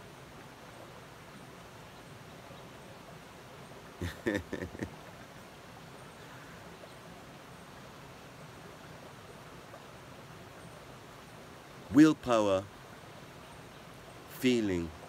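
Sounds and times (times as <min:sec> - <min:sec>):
faint background hiss: 0:00.0 - 0:15.0
man laughing: 0:04.0 - 0:05.0.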